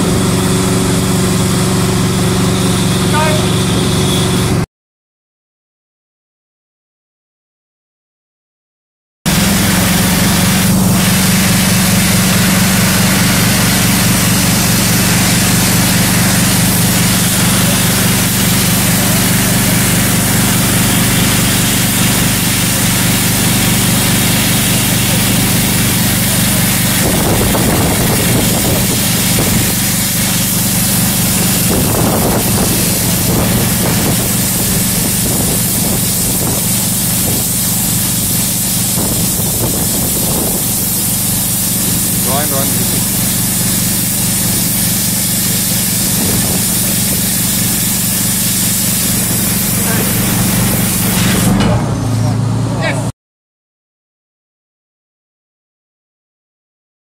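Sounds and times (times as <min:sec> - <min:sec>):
high-pressure pump engine drone: 0:00.0 - 0:04.7, 0:09.3 - 0:53.1
water jet spray hissing: 0:09.3 - 0:51.6.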